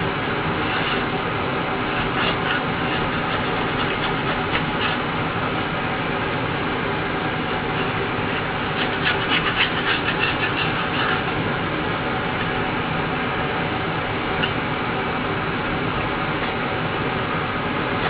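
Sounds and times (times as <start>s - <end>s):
steady mechanical hum: 0.0s - 18.0s
fingers scratching metal rim: 1.8s - 5.1s, 7.6s - 11.4s.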